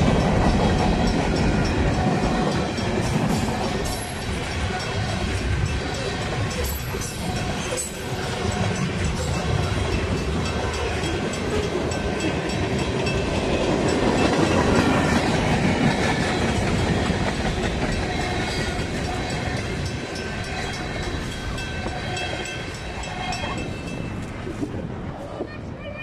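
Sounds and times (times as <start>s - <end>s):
freight train rolling past: 0.0s - 26.0s.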